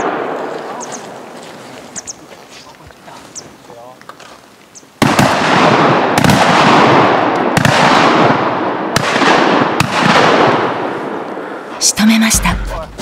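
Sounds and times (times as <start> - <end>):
shotgun shots with echo: 5.0 - 11.0.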